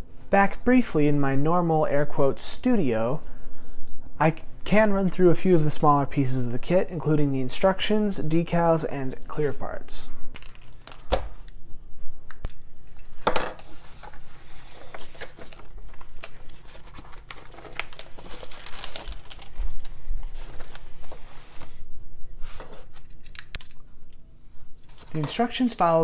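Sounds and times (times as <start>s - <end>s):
paper rustling: 13.6s - 21.8s, 24.8s - 26.0s.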